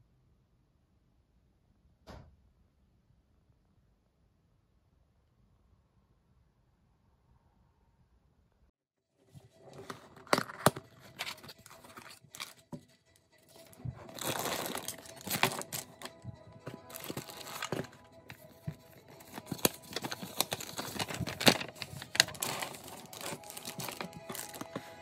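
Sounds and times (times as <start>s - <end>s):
plastic bags crinkling: 9.7s - 12.7s, 13.5s - 25.0s.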